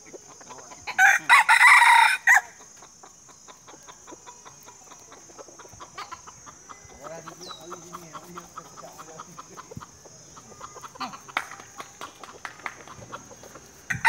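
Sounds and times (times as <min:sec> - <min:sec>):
rooster crowing: 0:00.9 - 0:02.6.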